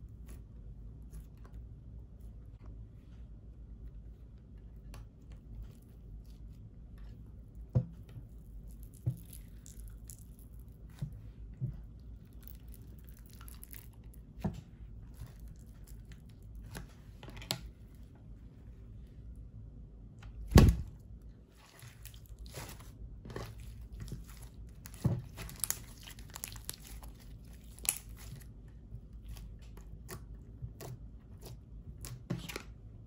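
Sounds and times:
slime crackling: 0:12.2 - 0:14.2, 0:21.6 - 0:28.5.

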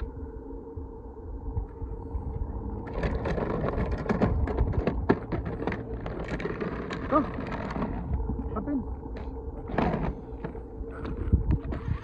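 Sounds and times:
plastic wheels rolling on asphalt: 0:02.7 - 0:12.0.

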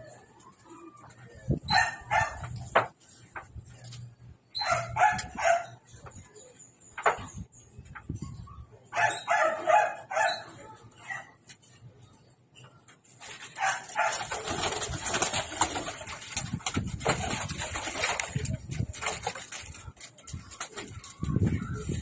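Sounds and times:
dog barks: 0:01.7 - 0:02.5, 0:04.6 - 0:05.8, 0:08.9 - 0:11.3, 0:13.6 - 0:14.3
pigeon wings clattering: 0:13.2 - 0:22.0.

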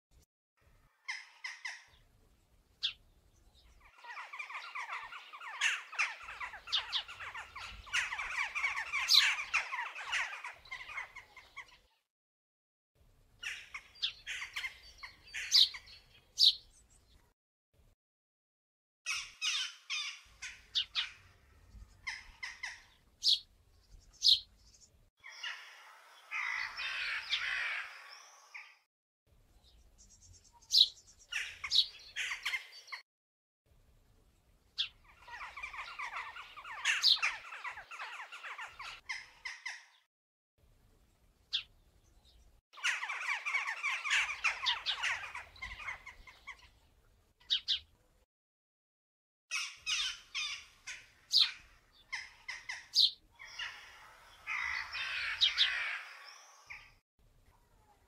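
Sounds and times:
birds chattering: 0:03.6 - 0:11.8, 0:13.4 - 0:16.6, 0:30.0 - 0:33.0, 0:34.8 - 0:40.1, 0:42.8 - 0:46.7, 0:49.5 - 0:57.0.

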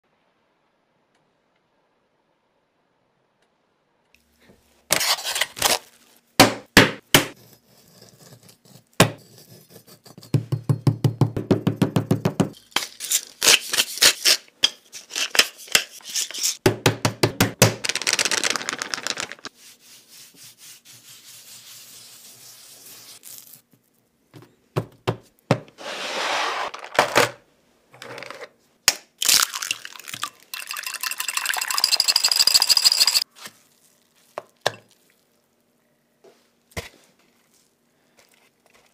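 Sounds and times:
eggs beaten in glass bowl: 0:29.8 - 0:33.2.

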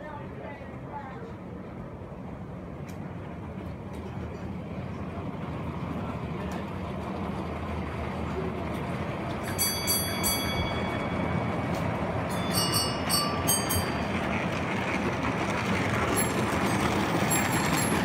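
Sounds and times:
model train running on track: 0:00.0 - 0:18.0
sharp metallic clinks: 0:09.5 - 0:14.4.

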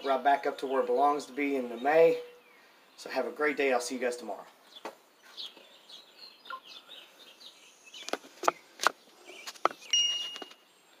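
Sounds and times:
small birds chirping: 0:00.0 - 0:11.0
short steady high tone: 0:09.9 - 0:10.4.

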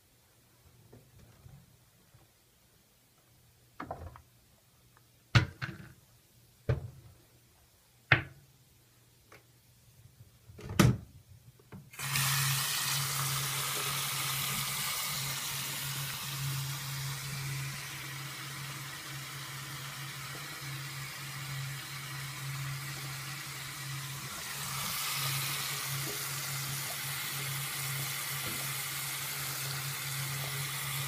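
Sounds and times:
water running into sink: 0:12.0 - 0:31.0.

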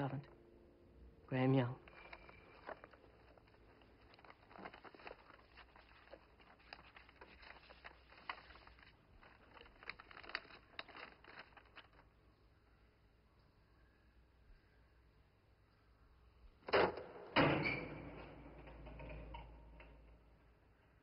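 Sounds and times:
paper envelope rustling: 0:01.8 - 0:12.2.

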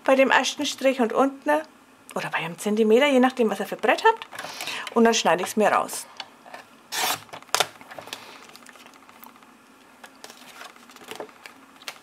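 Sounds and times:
paper trimmer blade scraping swish: 0:06.9 - 0:07.2.

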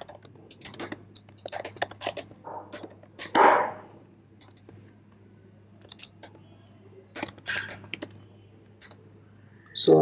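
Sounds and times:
keyboard typing: 0:00.0 - 0:03.5, 0:04.4 - 0:04.8, 0:05.7 - 0:09.1.

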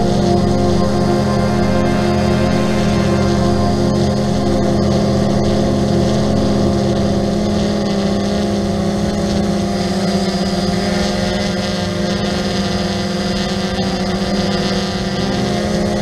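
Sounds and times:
quadcopter drone whine: 0:00.0 - 0:16.0.

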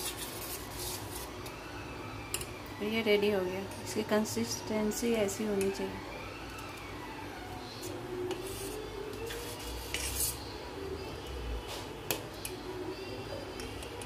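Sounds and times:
spoon scraping a steel pot: 0:07.8 - 0:10.5.

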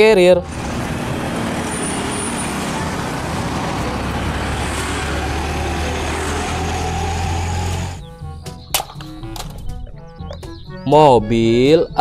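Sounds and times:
truck driving past: 0:00.4 - 0:08.1.

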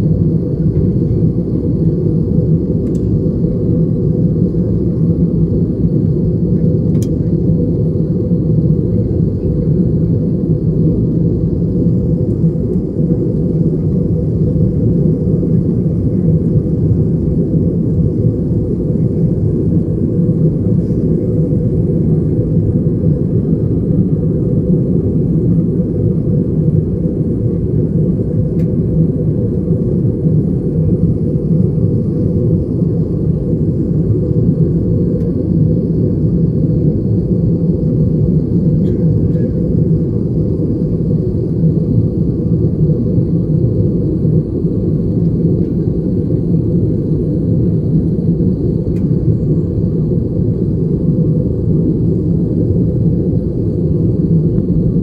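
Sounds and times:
airliner cabin rumble: 0:00.0 - 0:55.0.

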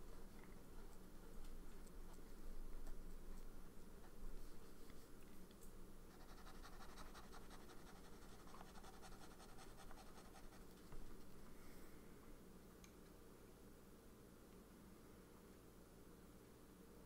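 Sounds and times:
dip pen scratching on paper: 0:06.1 - 0:11.2.

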